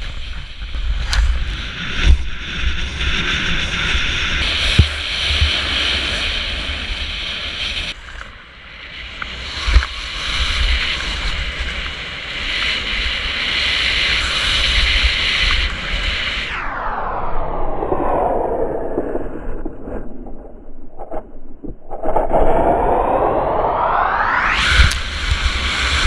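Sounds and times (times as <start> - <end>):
wind rushing over microphone: 0.0 - 26.0.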